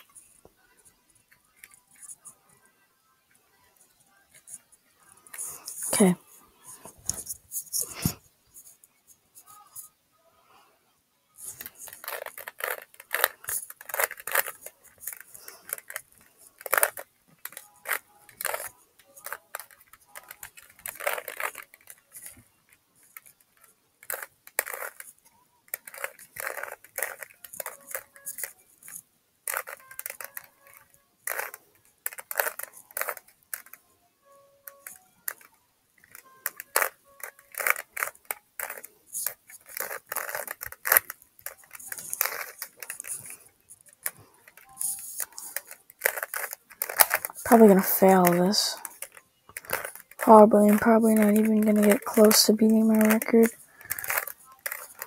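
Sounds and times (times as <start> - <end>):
puzzle cube clicking: 11.4 - 33.8, 34.4 - 55.0.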